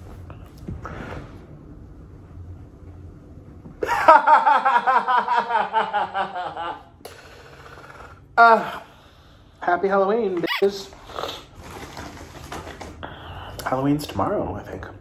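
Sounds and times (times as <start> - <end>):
man laughing: 3.8 - 6.9.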